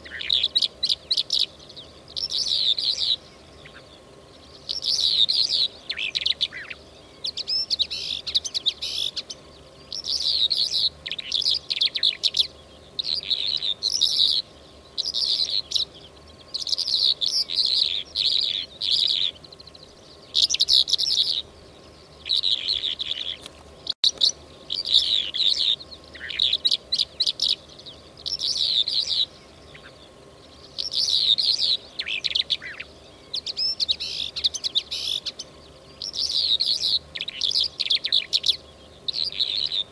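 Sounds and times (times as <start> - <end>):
lark chirping and twittering: 0.0 - 39.9.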